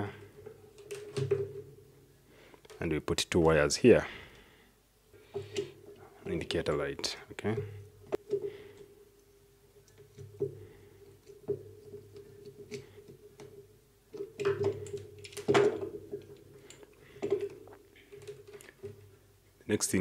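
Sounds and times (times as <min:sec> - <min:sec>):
plastic housing knocking and rattling: 0:00.4 - 0:01.8, 0:09.9 - 0:19.1.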